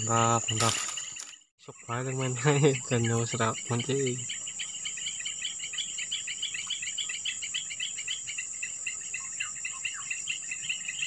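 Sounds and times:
insects buzzing and chirping: 0.0s - 11.0s.

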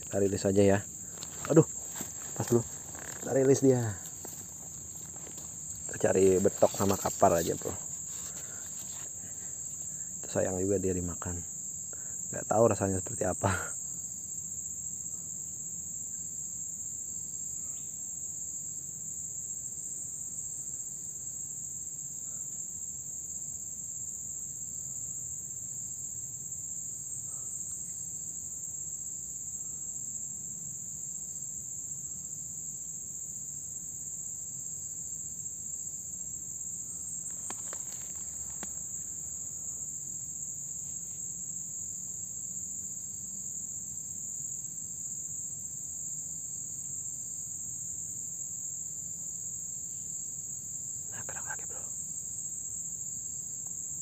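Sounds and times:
high-pitched insect chorus: 0.0s - 54.0s
faint ticks: 37.2s - 39.1s.

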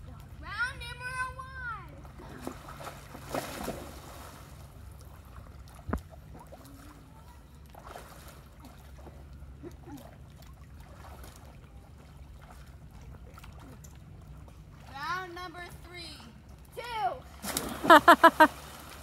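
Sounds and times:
water sloshing and lapping: 0.0s - 19.0s
person splashing into water: 2.4s - 4.4s, 17.4s - 19.0s.

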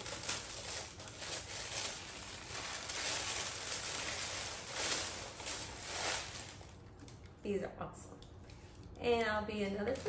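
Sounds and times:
tissue paper rustling: 0.0s - 6.8s.

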